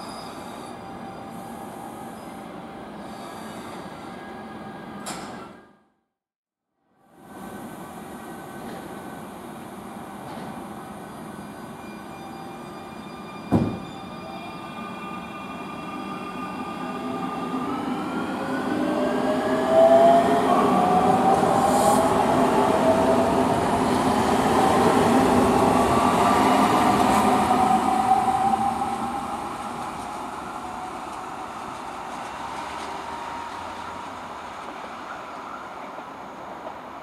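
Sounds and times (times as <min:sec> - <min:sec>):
rumble of wheels on rail: 0:17.0 - 0:37.0.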